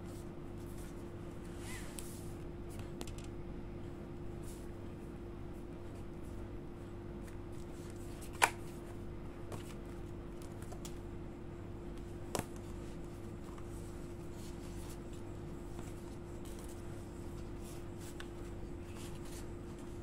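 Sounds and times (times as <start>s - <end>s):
steady hum: 0.0s - 20.0s
paper rustling: 12.4s - 20.0s.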